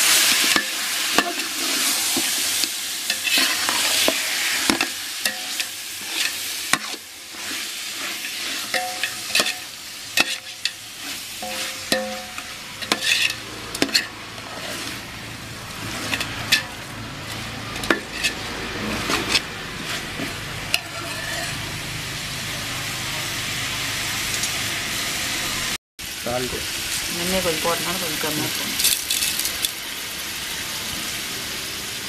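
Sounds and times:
meat sizzling: 0.0s - 32.0s
metal ladle scraping pot: 3.1s - 15.2s, 15.8s - 21.7s.

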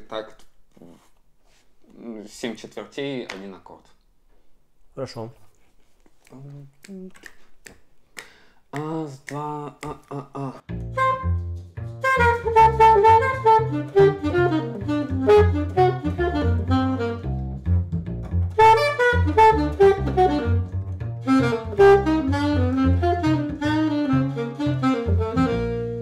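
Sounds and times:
plucked double bass: 10.6s - 26.0s
alto saxophone improvising jazz: 10.7s - 26.0s.

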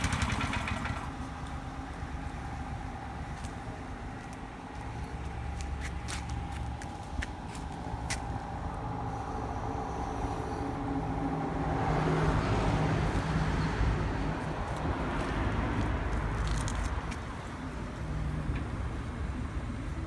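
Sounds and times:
petrol engine running: 0.0s - 11.5s.

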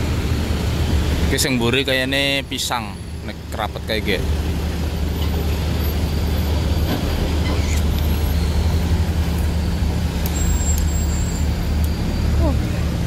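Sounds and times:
truck engines droning: 0.0s - 13.0s.

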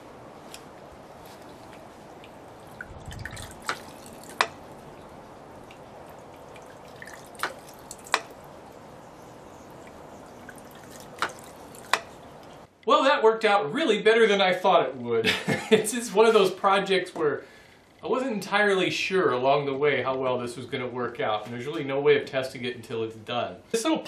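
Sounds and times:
water trickling from spout: 1.3s - 12.7s.

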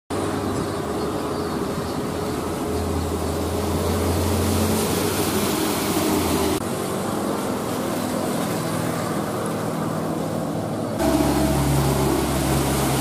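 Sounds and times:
diesel truck engine drone: 0.1s - 13.0s
tyres hissing on wet road: 3.0s - 6.6s, 11.0s - 13.0s.

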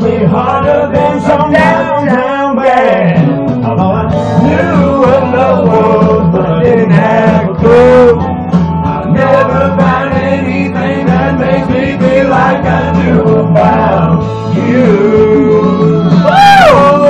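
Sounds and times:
man singing: 0.0s - 8.3s, 9.0s - 17.0s
backing track with bass: 0.0s - 17.0s.

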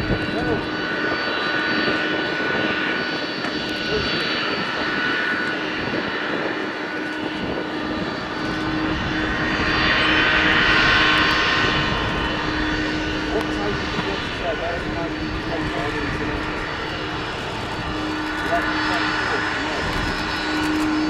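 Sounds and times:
jet engines whining: 0.0s - 21.0s.

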